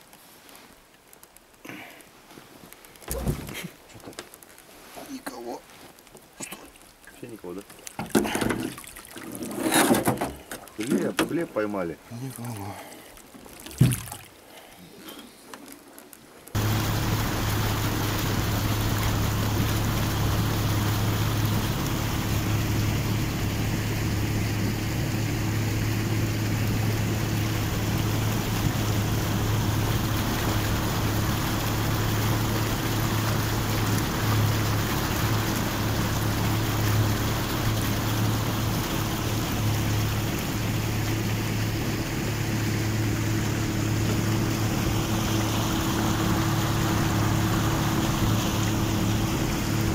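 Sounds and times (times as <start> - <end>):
water rushing along hull: 0.0 - 49.9
motorboat engine drone: 16.5 - 49.9.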